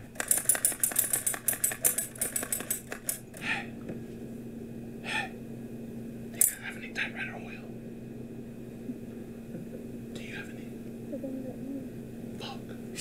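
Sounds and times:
typewriter keys clacking: 0.0s - 3.2s.

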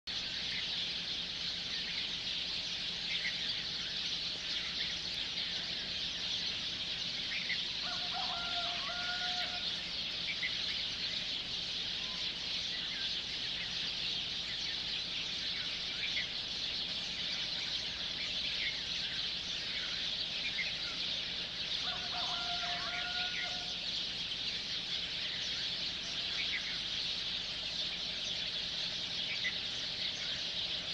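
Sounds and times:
birds chirping: 0.1s - 30.9s
fowl held call: 7.8s - 9.7s, 21.8s - 23.8s.

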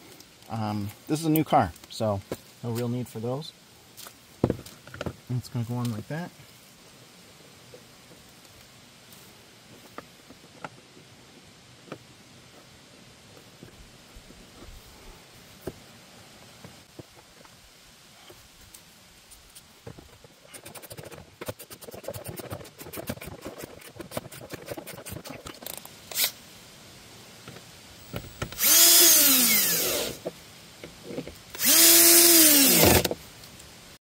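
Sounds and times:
cordless drill spinning: 28.0s - 30.2s, 31.6s - 33.2s.

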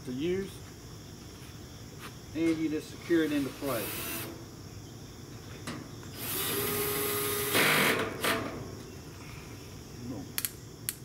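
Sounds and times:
sharp clicks: 10.4s - 11.0s.

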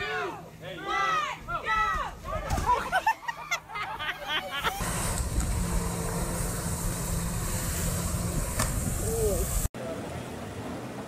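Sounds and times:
jet ski engine drone: 4.7s - 11.0s
rushing water hiss: 4.8s - 9.7s.

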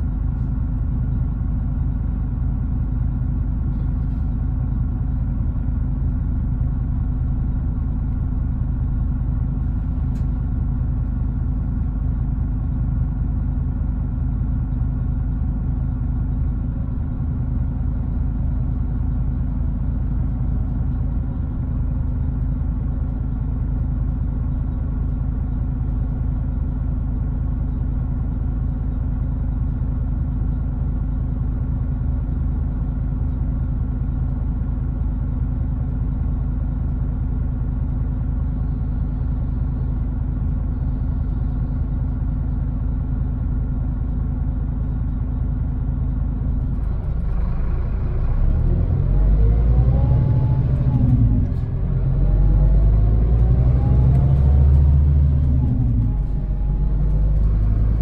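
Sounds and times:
bus diesel engine idling: 0.0s - 58.0s
engine whine accelerating: 46.6s - 58.0s.

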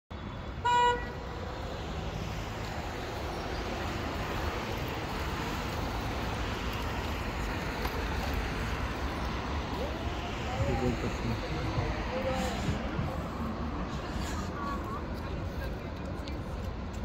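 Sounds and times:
traffic noise: 0.1s - 17.0s.

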